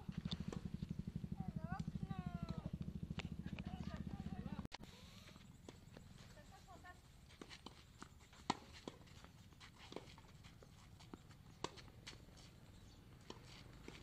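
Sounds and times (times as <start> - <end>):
ball bouncing on clay court: 0.2 - 0.8, 1.6 - 4.6, 7.4 - 12.5
rackets striking tennis ball: 7.3 - 12.5, 13.2 - 14.0.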